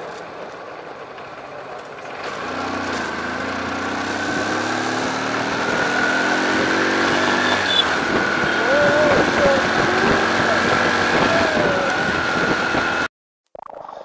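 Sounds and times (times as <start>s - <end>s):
wind and road noise: 0.0s - 13.1s
motorcycle engine accelerating: 1.2s - 13.1s.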